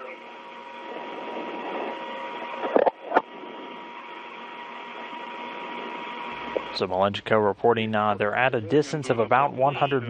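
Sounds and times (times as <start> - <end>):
radio static hiss: 0.0 - 10.0
sharp radio clicks: 1.0 - 3.4, 4.9 - 6.8.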